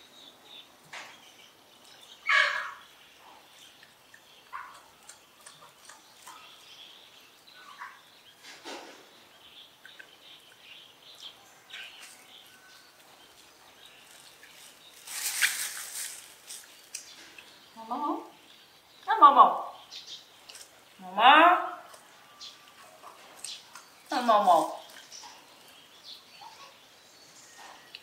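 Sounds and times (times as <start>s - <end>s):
animal chirps and squeaks: 2.2s - 2.8s, 26.4s - 26.8s.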